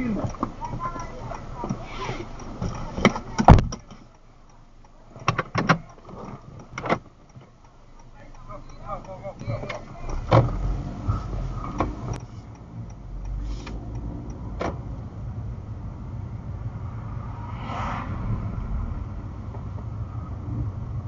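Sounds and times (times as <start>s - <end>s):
sharp clicks: 0.0s - 15.0s
car engine and road noise: 0.0s - 21.0s.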